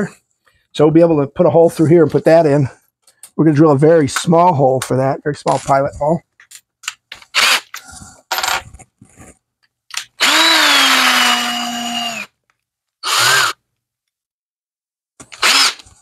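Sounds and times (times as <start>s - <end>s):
cordless drill spinning: 7.3s - 7.8s, 9.9s - 12.3s, 13.0s - 13.6s, 15.3s - 16.0s.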